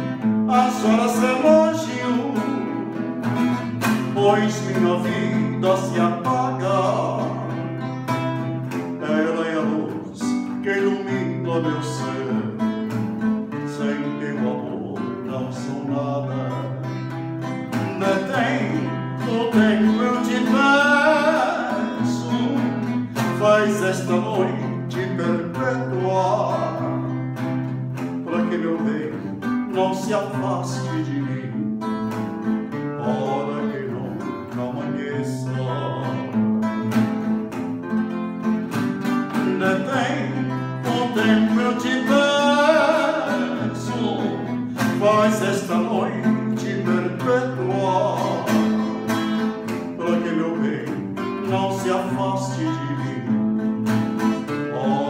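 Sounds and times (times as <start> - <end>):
man singing with vibrato: 0.0 - 37.5, 38.1 - 55.0
acoustic classical guitar: 0.0 - 55.0.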